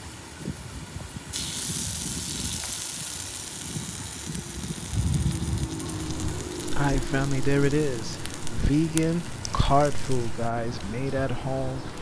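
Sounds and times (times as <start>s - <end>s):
food sizzling on a griddle: 0.8s - 12.0s
low rumble: 3.8s - 12.0s.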